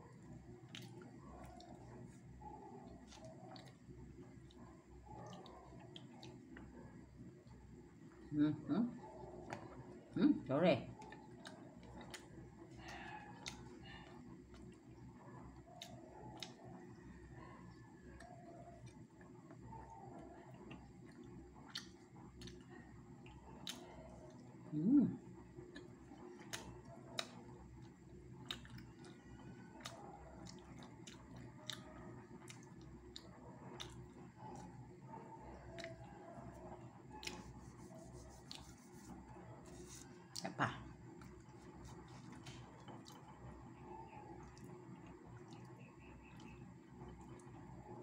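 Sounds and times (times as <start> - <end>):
chewing food: 0.0 - 8.3, 10.8 - 24.7, 25.3 - 48.0.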